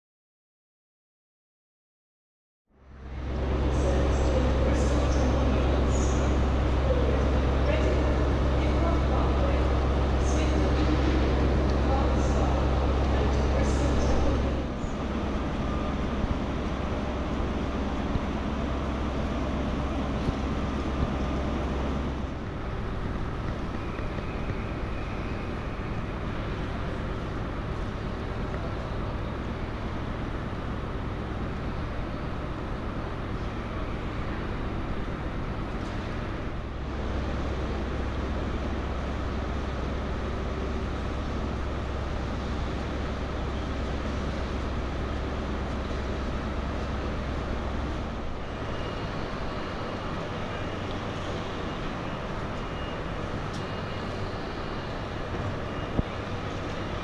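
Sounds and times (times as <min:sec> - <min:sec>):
low hum: 0:02.7 - 0:57.0
railway station ambient noise: 0:02.7 - 0:57.0.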